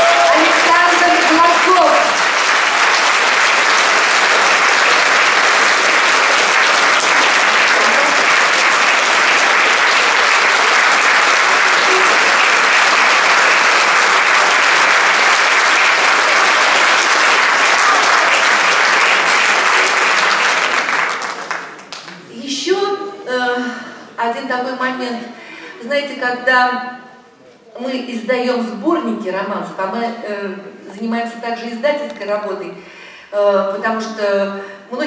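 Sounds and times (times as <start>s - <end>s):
audience applauding: 0.0s - 22.3s.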